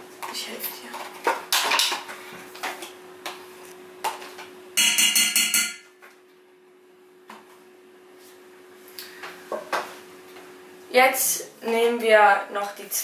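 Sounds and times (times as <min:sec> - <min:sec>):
faint steady hum: 0:00.0 - 0:13.0
taps ringing steel bowl: 0:04.8 - 0:05.9.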